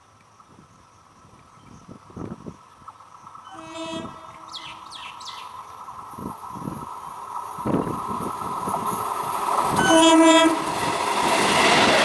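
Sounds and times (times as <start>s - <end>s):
electric train running: 3.1s - 12.0s
birds chirping: 3.2s - 5.8s
train horn: 3.5s - 4.8s, 9.8s - 10.8s.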